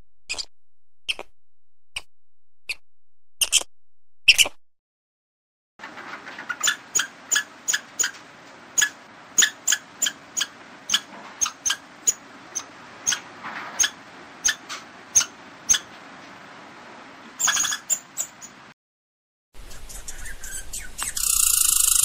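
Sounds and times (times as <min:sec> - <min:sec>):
squirrel chirping: 0:06.6 - 0:08.2, 0:08.8 - 0:13.2, 0:13.8 - 0:14.6, 0:17.4 - 0:18.6, 0:19.6 - 0:22.0.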